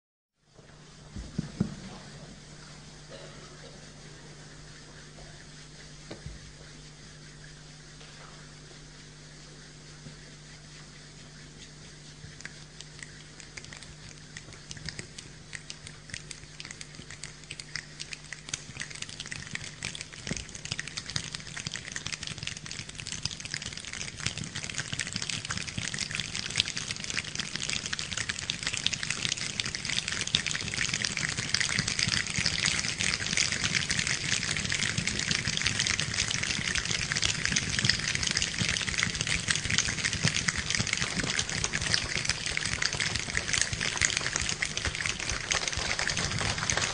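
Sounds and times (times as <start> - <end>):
hands clicking and patting like rain: 10.0 - 46.9.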